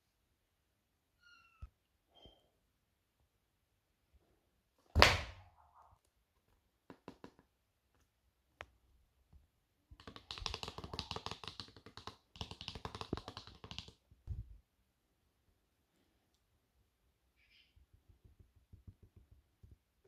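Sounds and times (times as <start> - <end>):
fingertips tapping and rubbing card: 6.8 - 7.5, 10.0 - 14.0.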